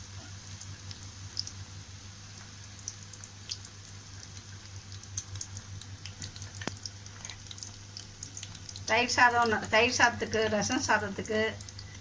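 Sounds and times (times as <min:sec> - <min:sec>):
food deep-frying in oil: 0:00.0 - 0:12.0.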